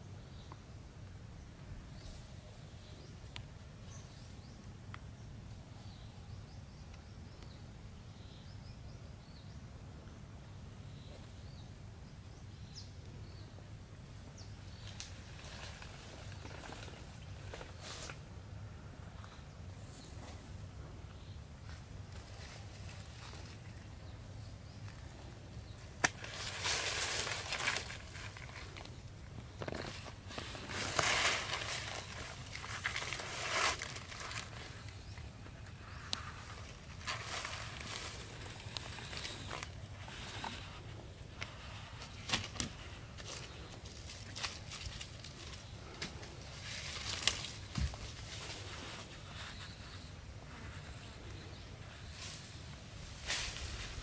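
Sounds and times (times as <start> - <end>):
dry leaves rustling: 14.7 - 18.2, 24.8 - 50.1, 51.9 - 54.0
crackles: 24.8 - 54.0.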